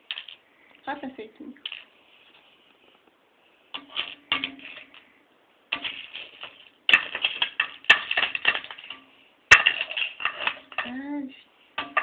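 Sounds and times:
candies rattling in frying pan: 0.0s - 0.5s, 1.6s - 1.9s, 3.8s - 12.0s.

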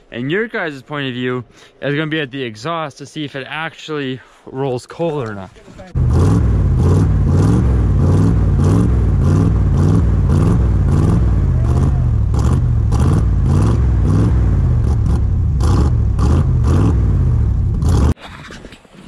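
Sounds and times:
engine exhaust running unevenly: 5.9s - 18.2s.

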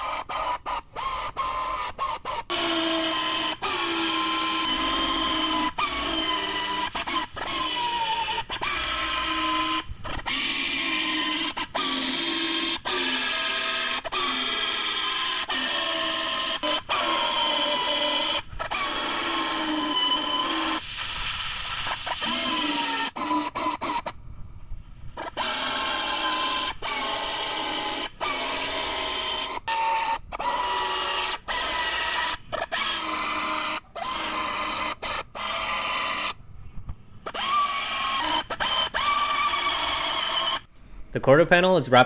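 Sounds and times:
power drill motor whining: 2.5s - 14.6s, 37.3s - 40.7s.

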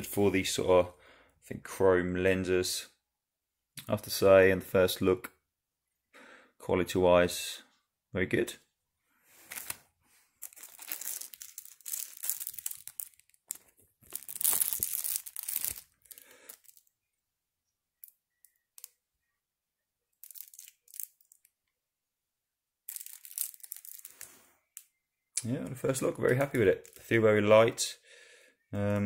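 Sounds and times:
plastic bag crinkling: 9.3s - 16.9s, 20.2s - 21.5s, 22.9s - 24.4s, 26.0s - 27.2s.

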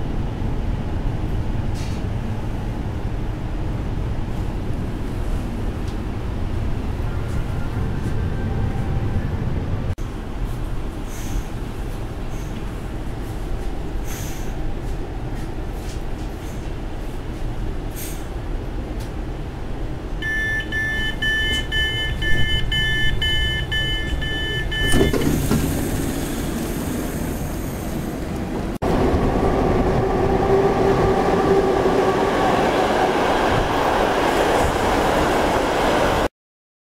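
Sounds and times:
low rumble inside train carriage: 0.0s - 36.3s
train door signal beeping: 20.2s - 26.1s.

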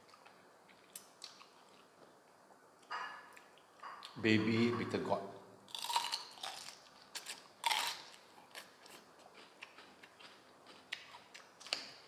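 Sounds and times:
crunching and chewing raw vegetable: 5.7s - 12.0s.

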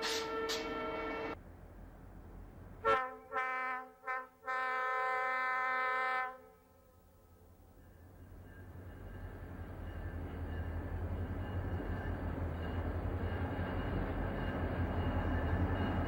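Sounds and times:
locomotive air horn chord: 0.0s - 1.4s, 2.8s - 6.9s
freight train rumble: 0.0s - 5.7s, 6.4s - 16.0s.

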